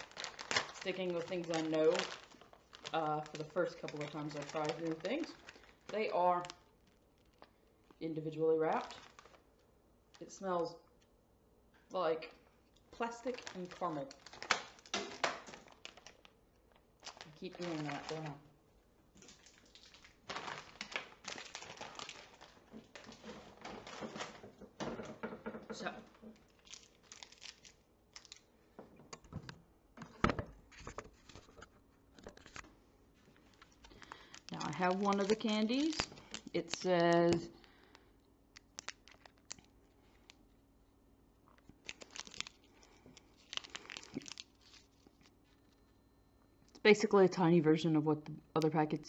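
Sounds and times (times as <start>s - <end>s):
plastic packaging crinkling: 0.0s - 8.0s, 8.6s - 10.4s, 12.7s - 18.5s, 19.1s - 24.9s, 25.8s - 28.7s, 30.0s - 40.5s, 41.5s - 45.8s.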